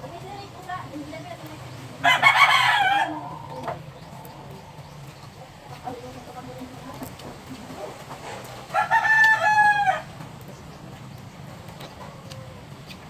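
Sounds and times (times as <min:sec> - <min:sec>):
rooster crowing: 0:02.0 - 0:03.7, 0:08.7 - 0:10.2.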